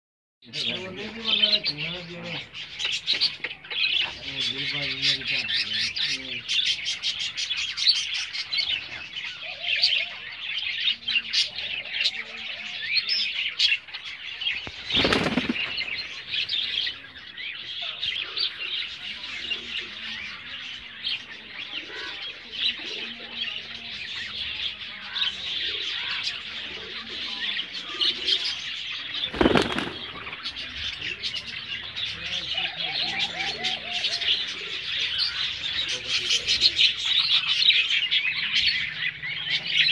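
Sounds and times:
small birds chirping: 0.4s - 39.9s
pigeon wings flapping: 14.7s - 15.7s, 29.3s - 30.2s.

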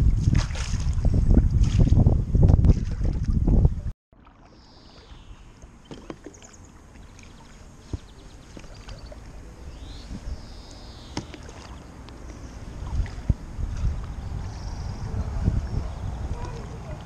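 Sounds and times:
paddle splashing in water: 0.2s - 14.9s, 15.7s - 17.0s
water washing against board: 5.6s - 9.4s, 11.0s - 12.0s.

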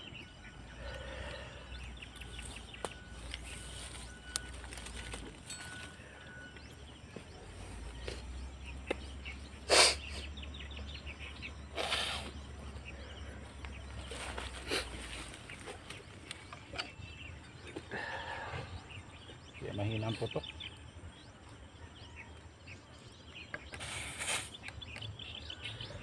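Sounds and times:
bursts of leaking air: 9.6s - 10.3s, 11.7s - 12.4s, 23.6s - 24.9s.

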